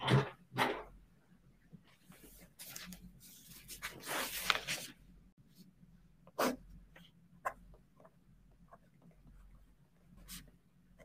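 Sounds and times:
paper rustling: 0:02.1 - 0:05.0.

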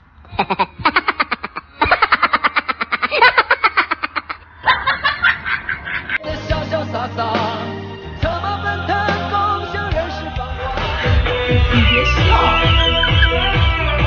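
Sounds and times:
person laughing hard: 0:00.3 - 0:06.2, 0:11.7 - 0:13.7
music: 0:06.2 - 0:14.0.

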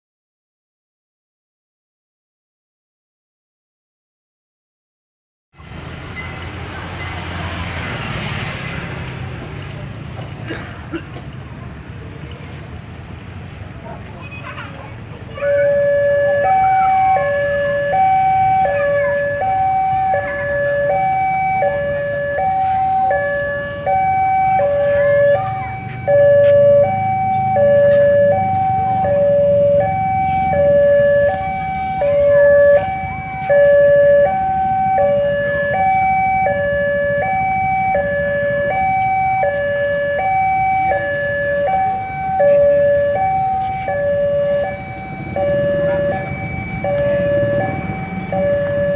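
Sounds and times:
level-crossing two-tone alarm: 0:15.4 - 0:48.9.

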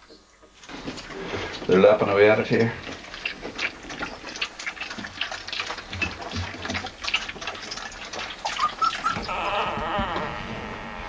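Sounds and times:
puppies lapping milk: 0:00.0 - 0:11.0
puppy squeaks: 0:08.4 - 0:09.6.

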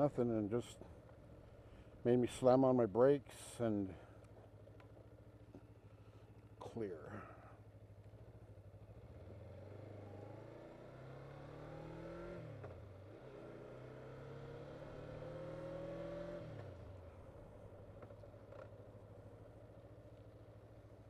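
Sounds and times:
motorcycle engine accelerating: 0:08.0 - 0:21.0.

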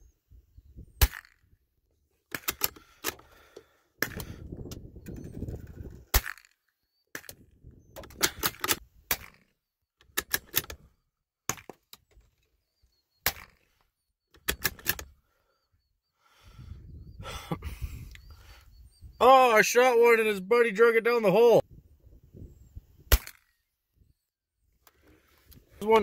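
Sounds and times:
handling clicks and knocks: 0:02.3 - 0:06.5, 0:07.1 - 0:10.9, 0:13.2 - 0:15.1.

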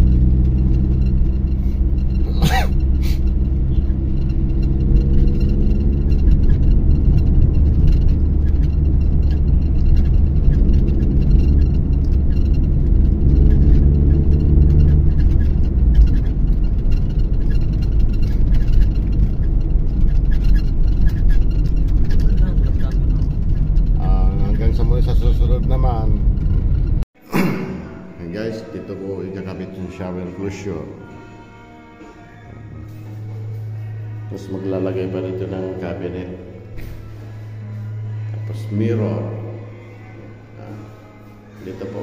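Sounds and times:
car engine hum: 0:00.0 - 0:27.1, 0:27.9 - 0:42.0
road rumble: 0:00.0 - 0:27.1, 0:27.9 - 0:42.0.

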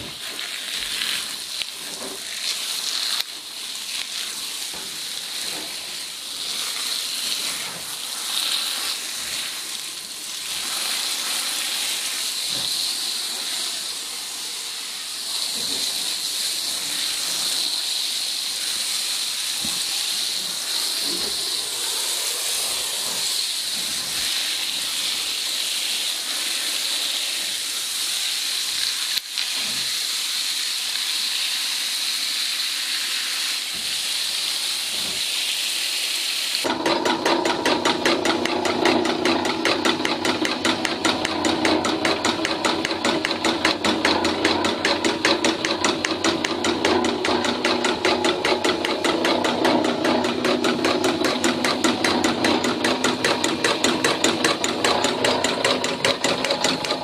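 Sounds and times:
hose nozzle spray hissing: 0:00.0 - 0:36.7.

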